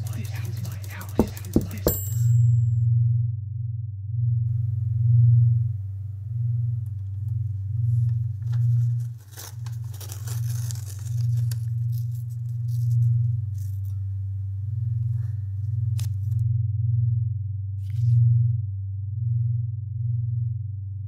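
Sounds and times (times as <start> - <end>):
sharp clicks: 0.0 - 1.9
low pulsing synth drone: 2.3 - 9.3, 10.7 - 21.0
paper rustling and tearing: 8.4 - 14.0.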